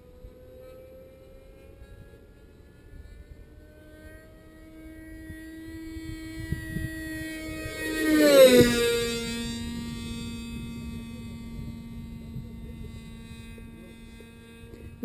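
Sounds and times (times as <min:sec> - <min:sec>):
model airplane engine whine: 0:00.0 - 0:15.0
wind rumble on microphone: 0:04.1 - 0:15.0.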